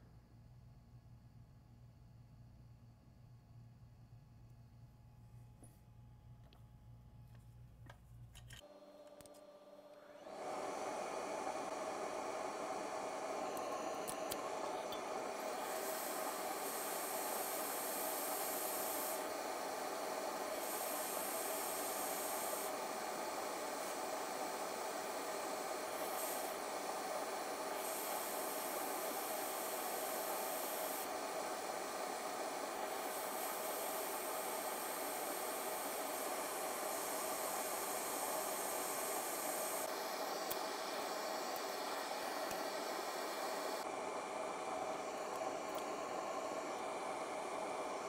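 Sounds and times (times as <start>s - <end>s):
hot air station blowing: 9.3s - 48.0s
higher hiss: 10.2s - 48.0s.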